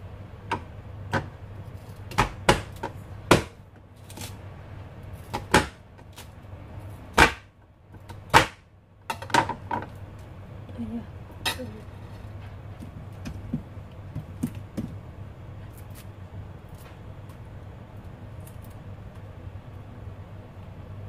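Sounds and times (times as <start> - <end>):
knife chopping on cutting board: 2.1 - 3.6, 5.2 - 5.8, 7.1 - 7.5.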